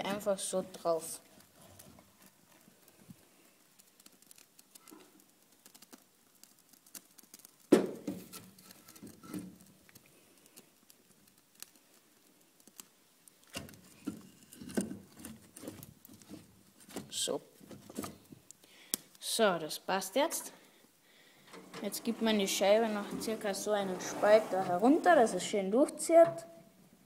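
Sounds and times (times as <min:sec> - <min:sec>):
fire crackling: 0:00.0 - 0:27.0
wooden logs knocking and scraping: 0:03.8 - 0:10.1, 0:12.6 - 0:18.6, 0:21.6 - 0:25.5.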